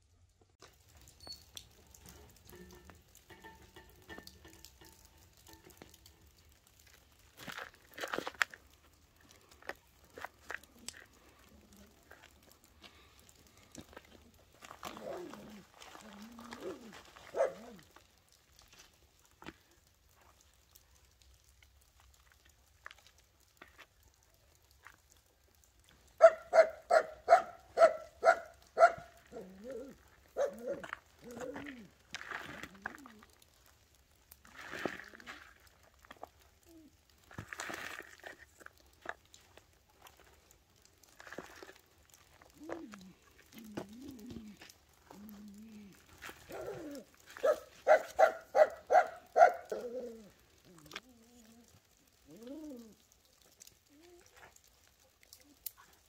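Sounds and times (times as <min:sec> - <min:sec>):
hand crumbling dry soil: 0:00.6 - 0:56.0
dog barking: 0:17.3 - 0:17.8, 0:26.2 - 0:29.4, 0:30.4 - 0:30.9, 0:47.4 - 0:49.9
dog howling: 0:46.5 - 0:50.3.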